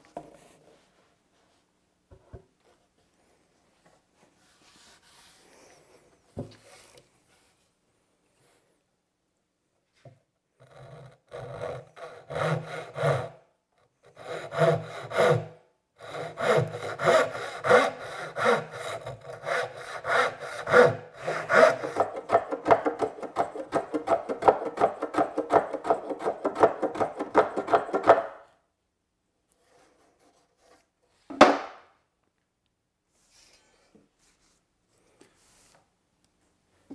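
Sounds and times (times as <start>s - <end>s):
pull saw cutting wood: 10.6s - 13.4s, 14.0s - 28.3s
hand tool rubbing wood edge: 10.7s - 13.3s, 14.1s - 28.3s.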